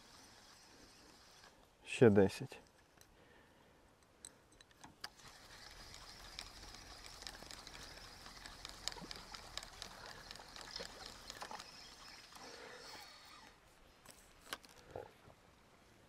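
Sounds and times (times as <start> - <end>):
fishing reel whirring and clicking: 0.0 - 1.6, 5.0 - 13.6
sharp reel clicks: 0.0 - 1.6, 5.0 - 13.6.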